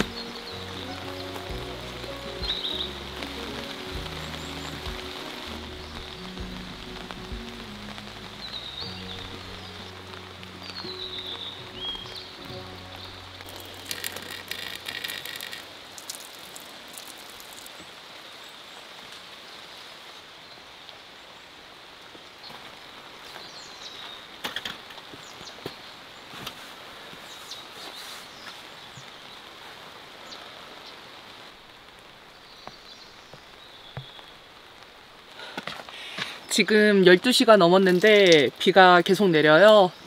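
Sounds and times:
steady rain falling: 0.0 - 40.0
sharp drips: 13.4 - 18.0.

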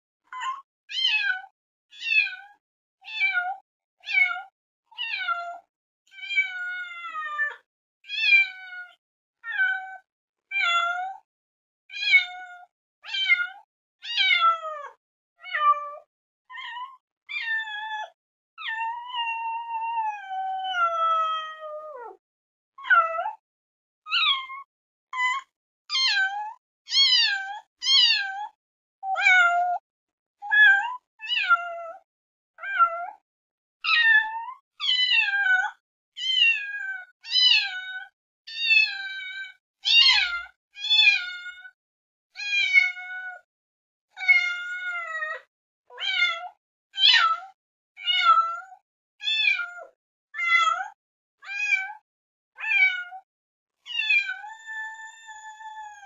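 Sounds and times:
cat meowing: 2.0 - 2.3, 12.0 - 12.4, 13.1 - 14.6, 16.5 - 17.8, 18.6 - 22.2, 25.4 - 28.4, 30.5 - 31.8, 32.6 - 33.0, 34.8 - 35.6, 36.2 - 37.8, 38.6 - 39.3, 39.9 - 41.4, 42.4 - 43.1, 44.1 - 45.1, 46.0 - 46.4, 48.0 - 48.4, 49.2 - 49.7, 52.6 - 53.1, 53.9 - 54.8.

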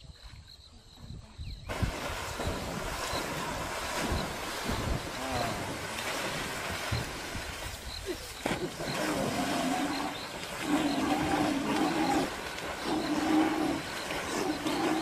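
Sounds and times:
splashing in river water: 1.7 - 15.0
waterbuck moaning calls: 8.6 - 15.0.

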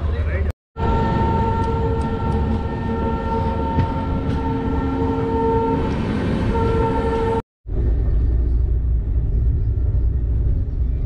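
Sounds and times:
rail wagons rumbling: 0.0 - 11.0
locomotive horn blast: 0.8 - 7.4.

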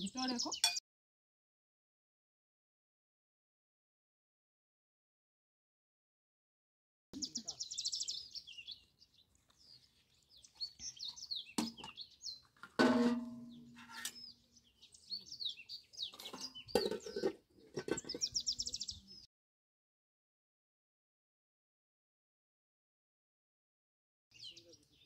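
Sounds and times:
small birds chirping and trilling: 0.0 - 0.8, 7.2 - 12.7, 13.4 - 19.3, 24.3 - 25.0
metal clang with ringing tone: 12.8 - 13.9.

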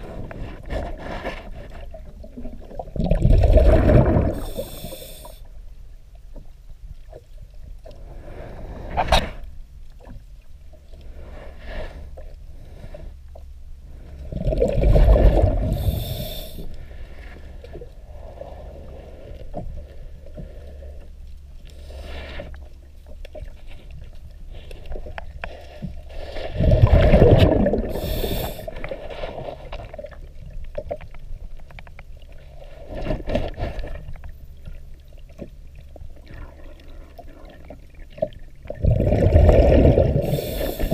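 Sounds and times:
bubbling underwater exhalations: 2.4 - 4.9, 26.6 - 28.7, 38.7 - 40.9
regulator inhalation hiss: 4.4 - 5.4, 15.7 - 16.7, 27.9 - 28.7, 40.2 - 40.9.

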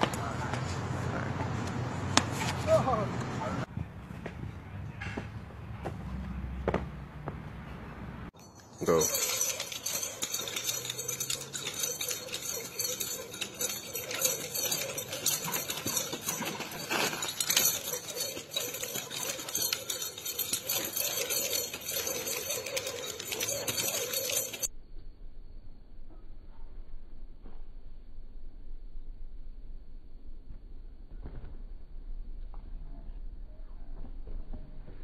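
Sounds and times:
nunchucks clattering rattle: 8.4 - 24.7.

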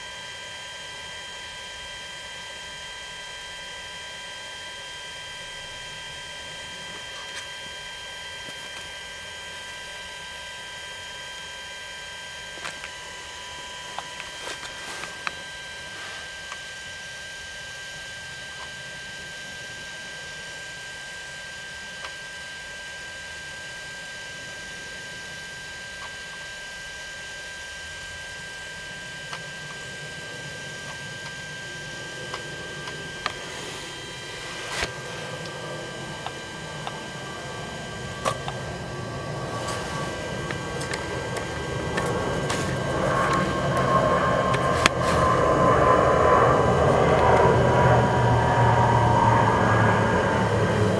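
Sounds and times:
drone high-pitched whine: 0.0 - 50.9
rushing noise: 33.4 - 50.9.

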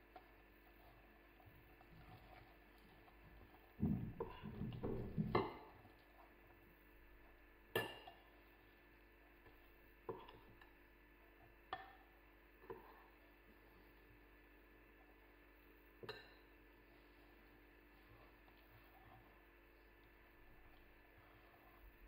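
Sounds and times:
dough being kneaded: 0.0 - 22.0.

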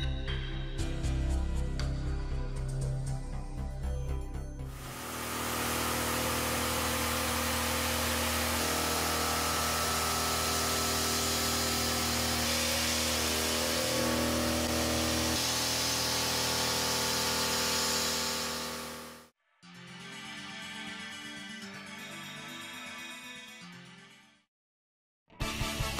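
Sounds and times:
hiss of metal cutting: 4.8 - 19.2
milling machine whine: 4.8 - 19.3.

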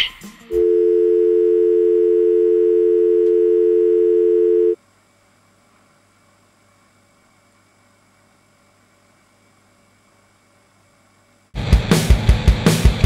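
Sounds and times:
telephone dial tone: 0.6 - 4.8.

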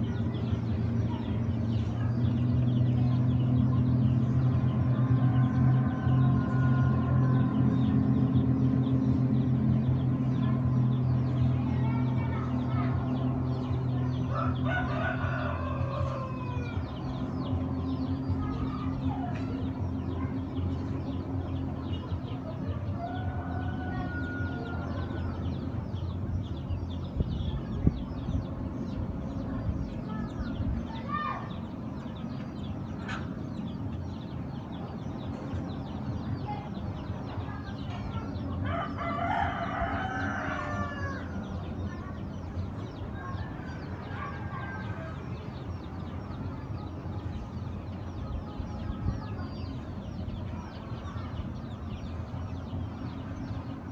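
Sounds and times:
low engine drone: 0.0 - 53.9
rooster crowing: 14.3 - 16.8, 23.0 - 25.1, 38.6 - 41.3.

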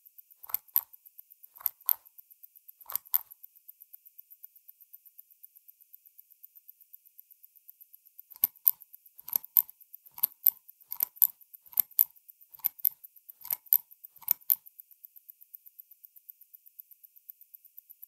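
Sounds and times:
faint fast watch ticking: 0.0 - 18.0
watch pusher metallic double click: 2.9 - 3.3, 8.4 - 14.6.

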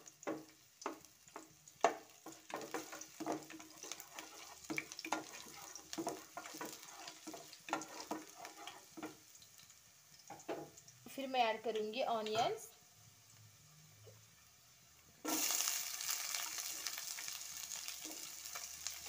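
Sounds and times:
ginger and garlic sizzling in oil: 0.0 - 19.0
wooden spatula scraping pan: 1.3 - 9.2, 17.9 - 18.6.

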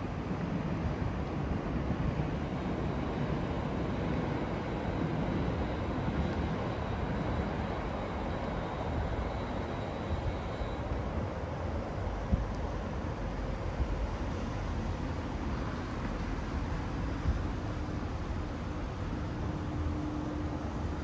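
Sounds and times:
city vehicle rumble: 0.0 - 21.0
faint high steady tone: 2.6 - 12.2.

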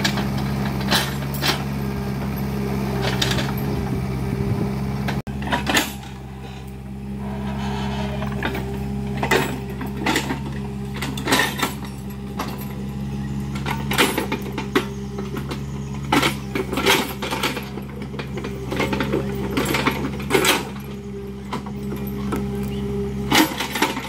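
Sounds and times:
diesel engine running: 0.0 - 24.0.

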